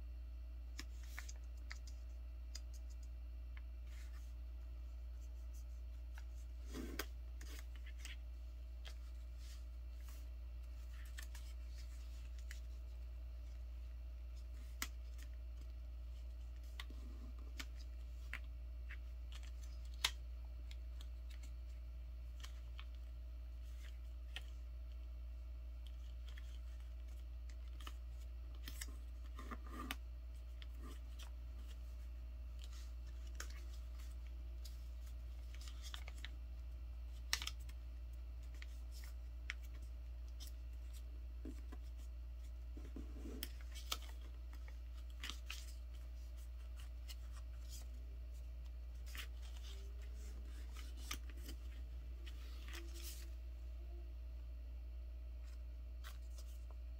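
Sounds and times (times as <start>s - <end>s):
paper crinkling and tapping: 37.1s - 37.8s.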